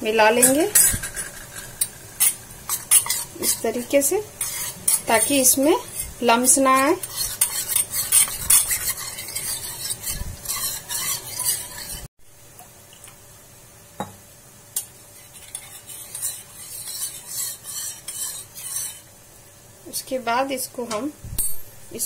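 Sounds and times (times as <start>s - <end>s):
spoon scraping a pan: 0.4s - 12.1s, 15.1s - 19.1s
gravy simmering: 14.9s - 19.4s.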